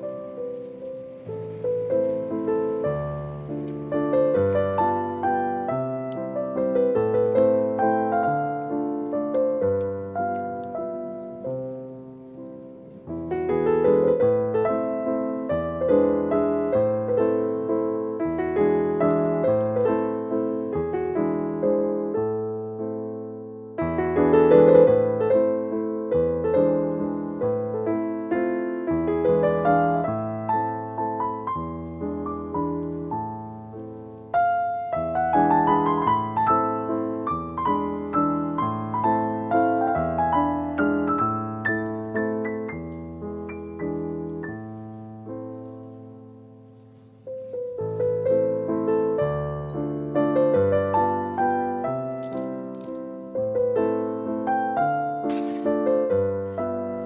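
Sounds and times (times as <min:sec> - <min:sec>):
gentle piano music: 0:00.0 - 0:57.0.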